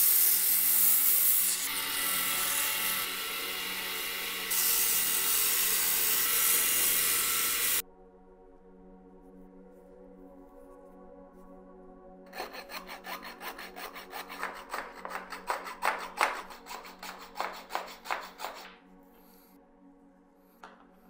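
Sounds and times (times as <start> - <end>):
hand saw cutting wood: 0.0 - 7.8, 12.3 - 18.8.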